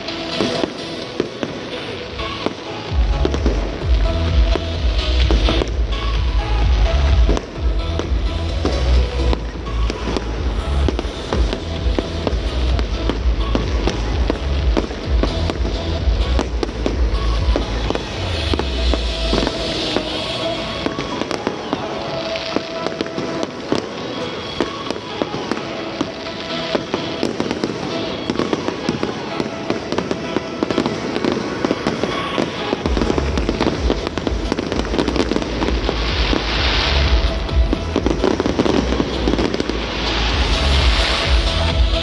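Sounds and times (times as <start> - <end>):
fireworks bursting and crackling: 0.0 - 42.0
music playing: 0.0 - 42.0.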